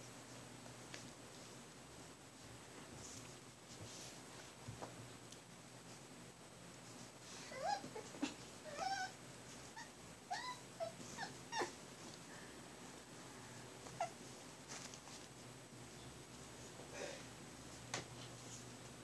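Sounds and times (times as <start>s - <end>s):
puppies squeaking and whimpering: 7.4s - 9.2s, 9.8s - 11.8s, 14.0s - 14.2s.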